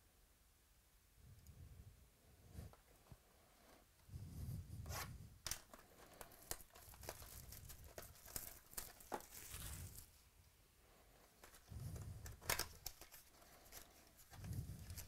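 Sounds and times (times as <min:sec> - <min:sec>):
plastic wrapping tearing and crinkling: 0:05.5 - 0:10.2, 0:11.4 - 0:15.0.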